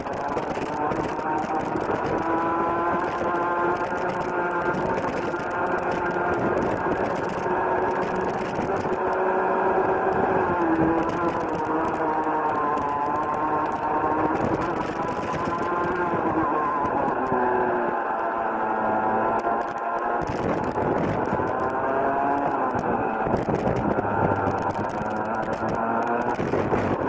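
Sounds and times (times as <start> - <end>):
kart engine running hard: 0.0 - 27.0.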